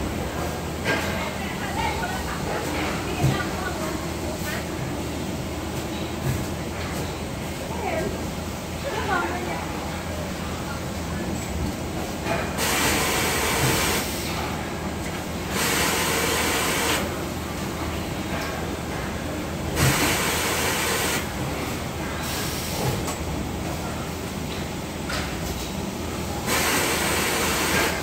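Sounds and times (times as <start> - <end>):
low hum of machinery: 0.0 - 28.0
machine hiss: 12.6 - 14.4, 15.5 - 17.1, 26.4 - 28.0.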